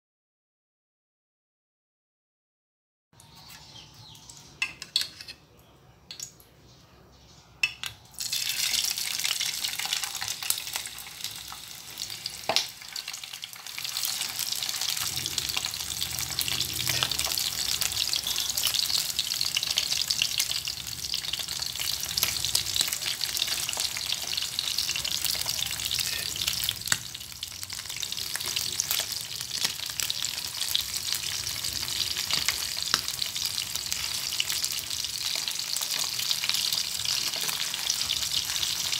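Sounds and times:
fish sizzling in hot oil: 0:08.2 - 0:38.9.

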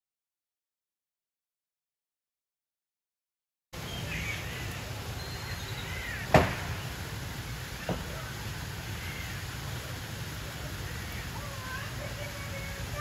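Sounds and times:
birds calling: 0:03.8 - 0:13.0
sharp knock: 0:06.3 - 0:06.7.

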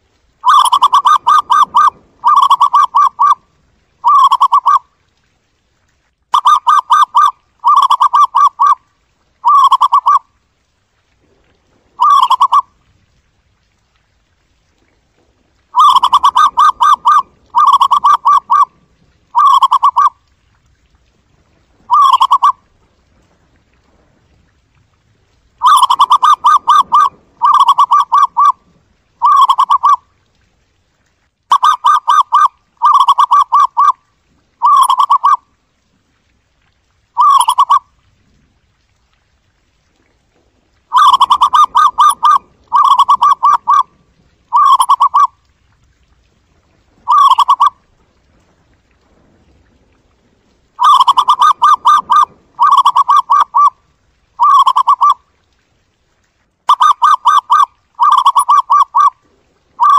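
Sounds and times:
dove trilled cooing: 0:00.4 - 0:03.4, 0:04.0 - 0:04.8, 0:06.4 - 0:08.8, 0:09.4 - 0:10.2, 0:12.0 - 0:12.7, 0:15.7 - 0:18.7, 0:19.3 - 0:20.2, 0:21.9 - 0:22.6, 0:25.6 - 0:28.6, 0:29.2 - 0:30.0, 0:31.5 - 0:34.0, 0:34.6 - 0:35.4, 0:37.2 - 0:37.8, 0:40.9 - 0:43.9, 0:44.5 - 0:45.3, 0:47.1 - 0:47.8, 0:50.8 - 0:53.8, 0:54.4 - 0:55.2, 0:56.7 - 0:59.2.

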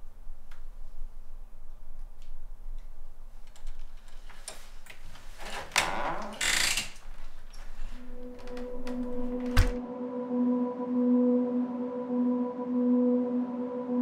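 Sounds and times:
door swinging rush: 0:05.4 - 0:09.8
low music drone: 0:07.8 - 0:14.0.

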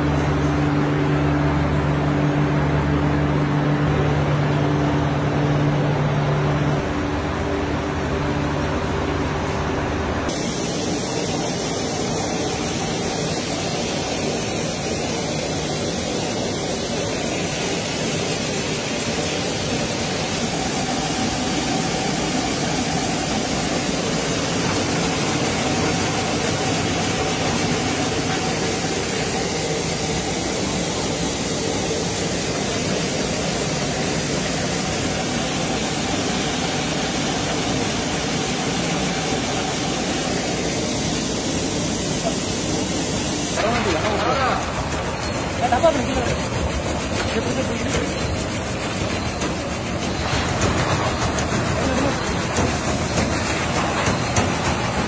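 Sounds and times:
machinery mechanical din: 0:43.5 - 0:55.0.

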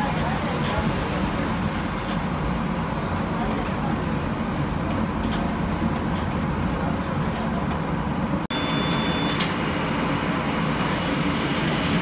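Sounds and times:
streetcar rumbling: 0:00.0 - 0:12.0
thin high beep: 0:08.5 - 0:09.4.

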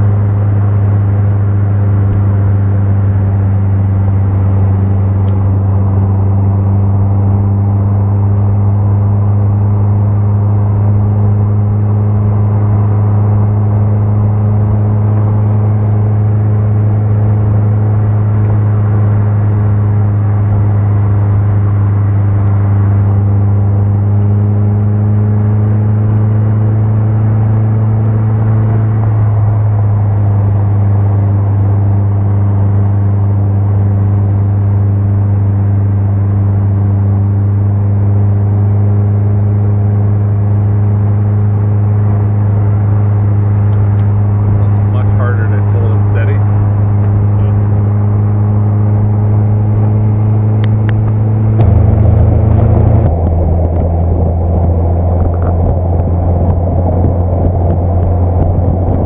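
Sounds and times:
car engine drone: 0:00.0 - 0:59.0
road and wind noise: 0:00.0 - 0:59.0.

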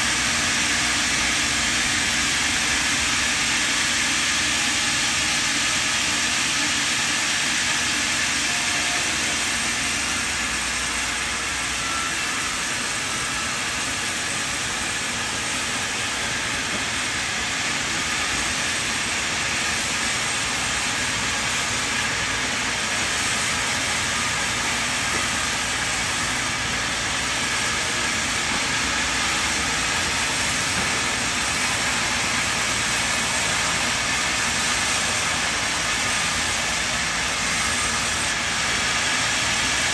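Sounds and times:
band saw cutting wood: 0:00.0 - 0:39.9.

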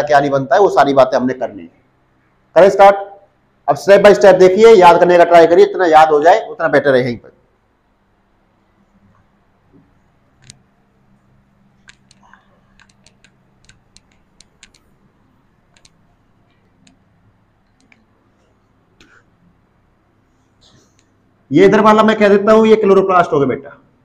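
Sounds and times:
faint low hum: 0:00.0 - 0:24.0
scattered clicks: 0:10.2 - 0:10.8, 0:11.6 - 0:15.0, 0:15.6 - 0:18.2
duster ticking on whiteboard: 0:11.8 - 0:15.0, 0:15.6 - 0:17.0.

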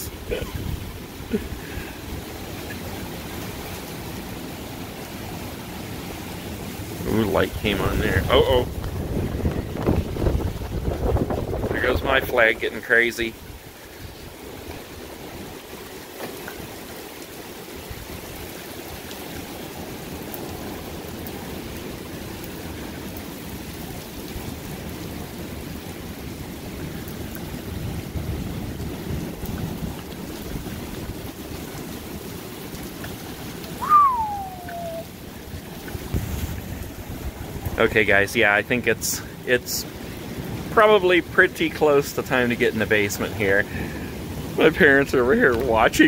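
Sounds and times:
rain rushing: 0:00.0 - 0:46.0
wind: 0:00.0 - 0:46.0
falling whistle-like tone: 0:33.8 - 0:35.1.

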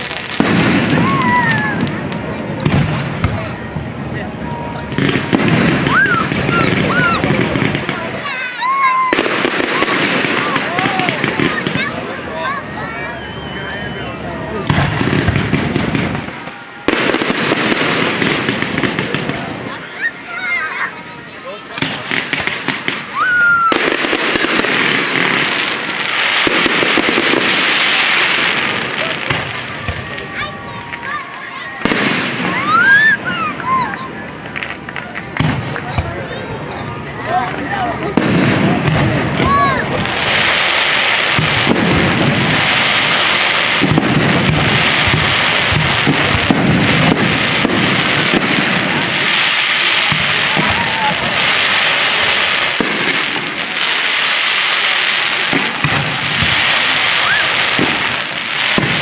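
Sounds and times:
firework crackling: 0:00.0 - 0:59.0
fireworks bangs: 0:00.0 - 0:59.0
firework rising whistle: 0:03.0 - 0:07.5, 0:12.0 - 0:18.2, 0:23.1 - 0:24.7, 0:26.5 - 0:34.2, 0:55.5 - 0:58.9.

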